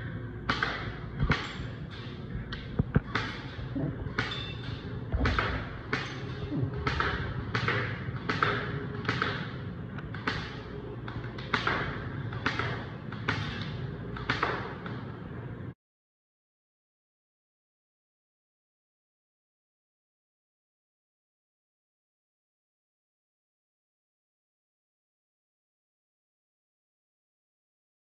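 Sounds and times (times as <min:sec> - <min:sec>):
air gun shots: 0:04.2 - 0:10.7.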